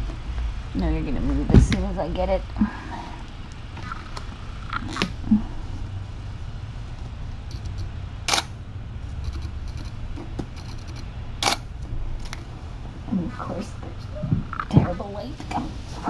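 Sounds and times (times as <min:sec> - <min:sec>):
camera shutter clicking: 0:08.3 - 0:08.5.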